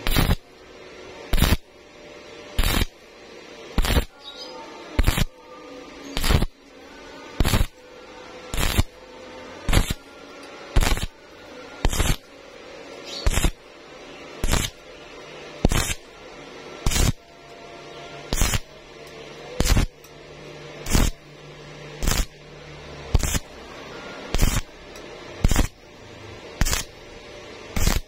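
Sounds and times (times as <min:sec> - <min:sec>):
welding arc crackling: 0:00.0 - 0:04.3, 0:04.9 - 0:17.4, 0:18.2 - 0:20.2, 0:20.8 - 0:26.0, 0:26.6 - 0:28.0.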